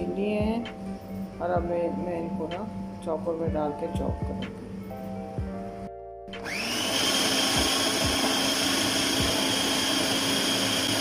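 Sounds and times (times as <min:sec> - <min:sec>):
food chopper motor whining: 0:06.4 - 0:11.0.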